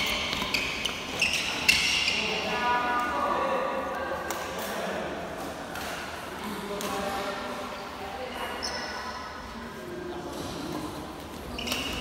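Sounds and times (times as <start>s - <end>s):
sneakers squeaking on court: 0.0s - 2.4s, 8.5s - 9.0s, 11.3s - 12.0s.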